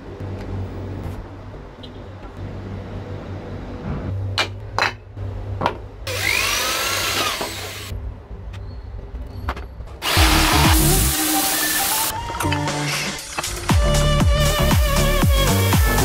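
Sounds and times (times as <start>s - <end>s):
electric drill boring into wood: 6.1s - 7.9s, 10.0s - 12.1s.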